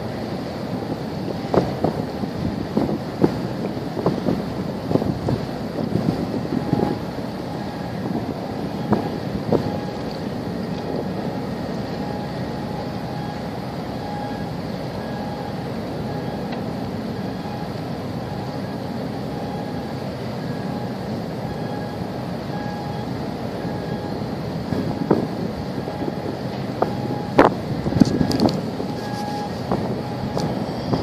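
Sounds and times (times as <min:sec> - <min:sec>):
wind on microphone: 0:00.0 - 0:11.3, 0:24.6 - 0:31.0
low engine rumble: 0:00.0 - 0:31.0.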